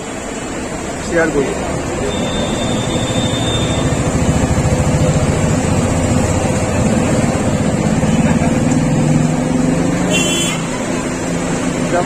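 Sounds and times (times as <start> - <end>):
traffic engine rumble: 0.0 - 12.0.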